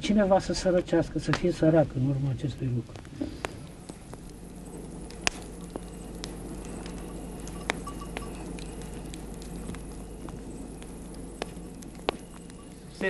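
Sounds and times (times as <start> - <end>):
campfire crackling and popping: 0.0 - 13.0.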